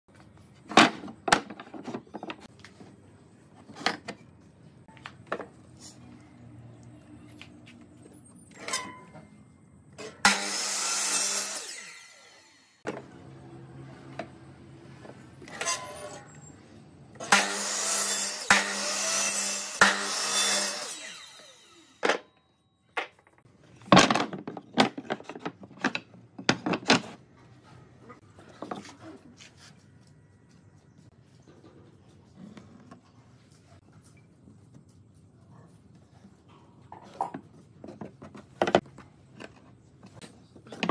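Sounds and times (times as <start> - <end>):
miter saw cutting wood: 10.2 - 12.8, 17.2 - 22.0
wooden boards clattering: 23.8 - 27.2.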